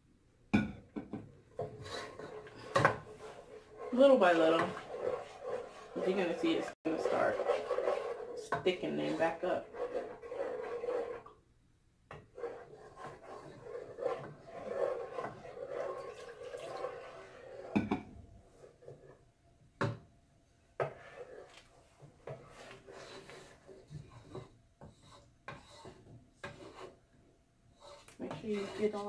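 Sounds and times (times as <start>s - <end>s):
wooden spoon scraping a metal pot: 1.6s - 11.4s, 12.1s - 17.8s, 20.8s - 27.0s, 27.7s - 29.0s.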